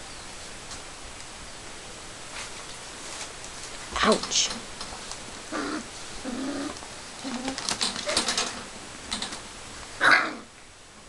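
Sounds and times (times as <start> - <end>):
puppies growling: 5.4 - 8.7, 10.0 - 10.5
puppy crying: 10.0 - 10.5.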